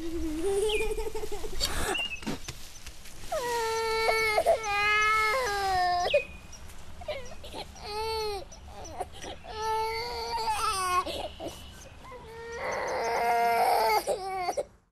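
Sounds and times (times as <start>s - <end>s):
baby crying: 3.4s - 6.2s, 7.1s - 14.7s.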